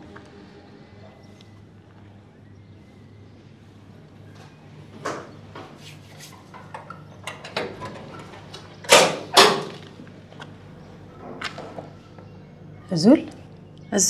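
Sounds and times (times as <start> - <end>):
metal door clanking: 6.6 - 10.0
metal door latch rattling: 6.7 - 10.0.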